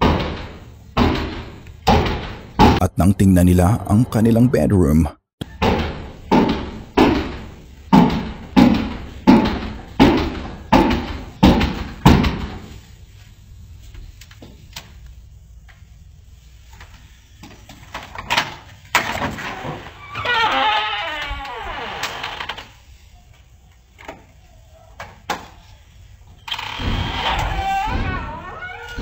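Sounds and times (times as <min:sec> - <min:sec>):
heavy pounding on a door: 0:00.0 - 0:02.8, 0:05.6 - 0:12.6.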